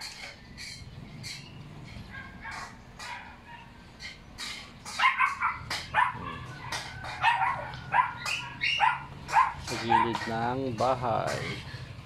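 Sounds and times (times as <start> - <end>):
dog barking: 2.1 - 3.8, 4.9 - 10.3.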